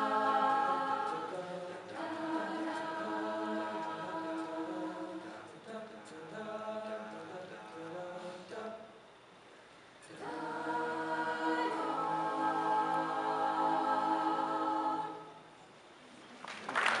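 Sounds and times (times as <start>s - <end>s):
choir singing a cappella: 0.0s - 8.9s, 10.0s - 15.5s
applause: 16.4s - 17.0s.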